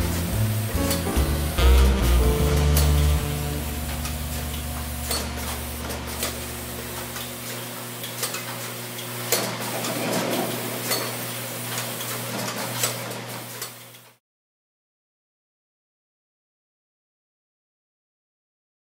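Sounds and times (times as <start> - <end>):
machine hum: 0.0 - 8.0.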